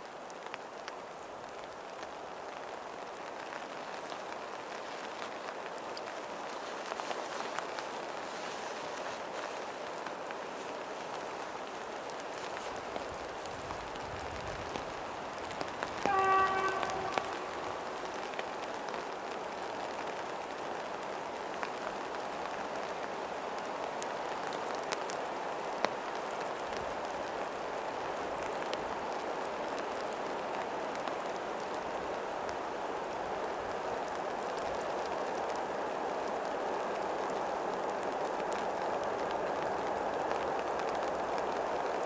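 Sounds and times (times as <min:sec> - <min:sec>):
steady rain: 0:00.0 - 0:42.0
diesel locomotive horn: 0:16.0 - 0:17.9.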